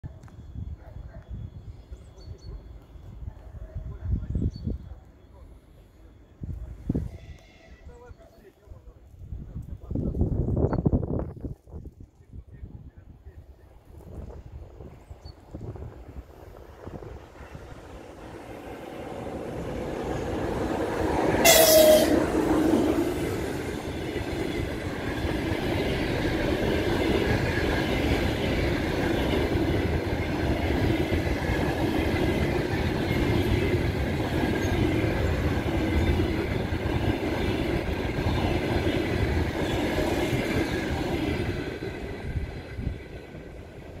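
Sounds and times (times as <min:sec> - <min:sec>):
train wheels rumbling on rails: 0:13.7 - 0:44.0
locomotive horn blast: 0:21.3 - 0:22.4.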